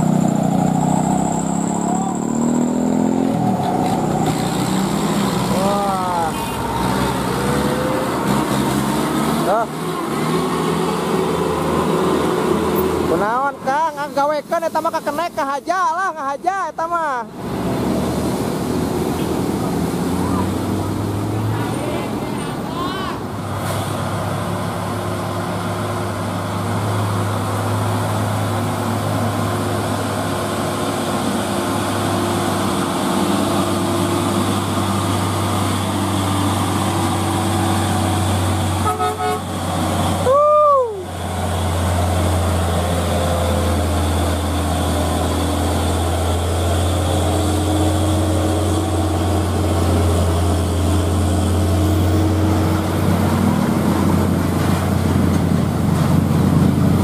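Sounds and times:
diesel truck engine labouring: 0.0s - 57.0s
loud horn toot: 38.8s - 39.6s.

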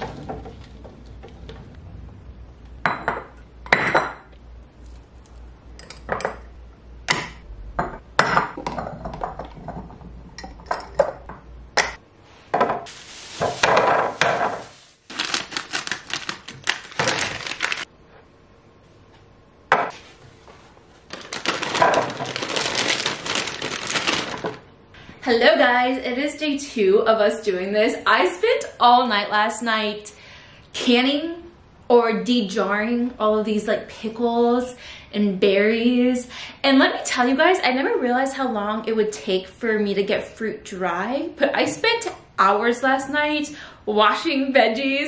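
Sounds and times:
plastic bag crinkling: 12.9s - 17.9s, 21.0s - 24.7s.

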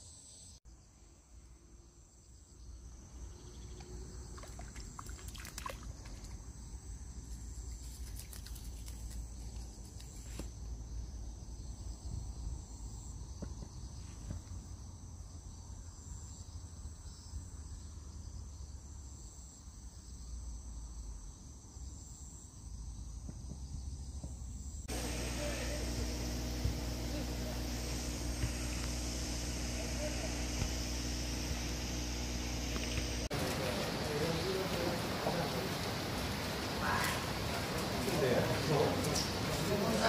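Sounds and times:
insects chirring: 0.0s - 40.0s.

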